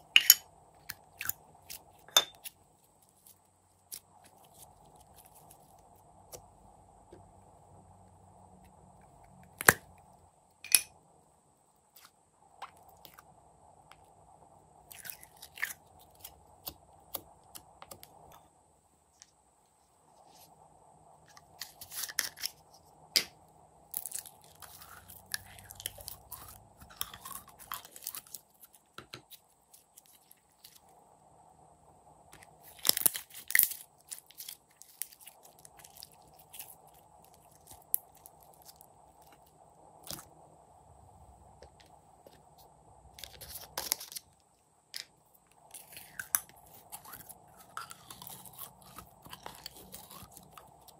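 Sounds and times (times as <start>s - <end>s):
slime crackling and popping: 32.6s - 38.8s.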